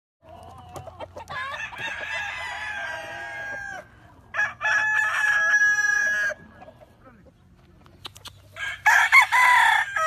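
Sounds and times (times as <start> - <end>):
rooster clucking: 0.2 - 10.0
rooster crowing: 1.3 - 6.4, 8.6 - 10.0.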